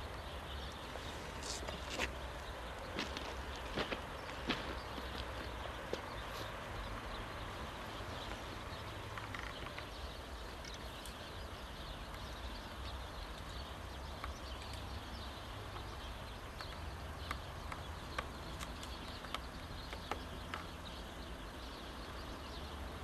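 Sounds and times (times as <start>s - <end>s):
sharp ticks: 13.2s - 20.9s.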